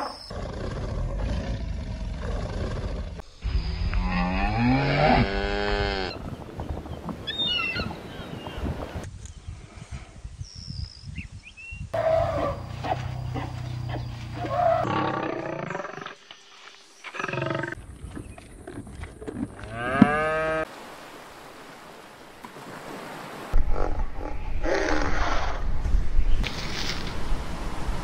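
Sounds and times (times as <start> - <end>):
cattle mooing: 19.6 - 20.7.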